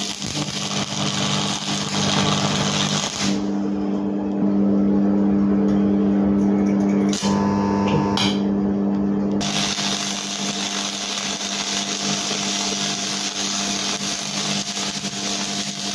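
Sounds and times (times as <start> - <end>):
welding arc crackling hiss: 0.0 - 3.5, 9.4 - 15.9
steady hum: 0.0 - 15.9.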